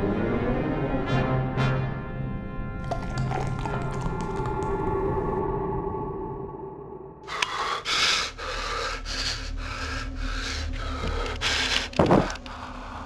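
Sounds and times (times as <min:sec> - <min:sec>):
man panting heavily: 0:07.3 - 0:13.0.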